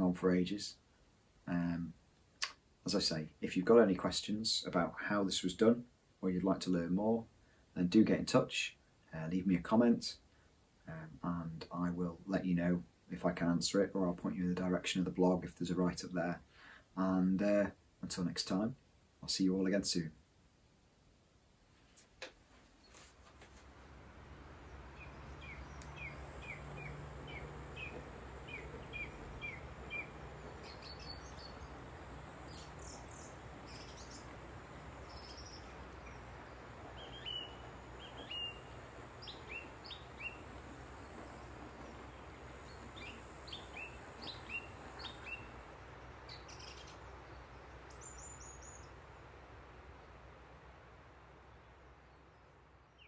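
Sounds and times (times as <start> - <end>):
faint low hum: 0.0 - 53.0
songbirds chirping: 22.2 - 53.0.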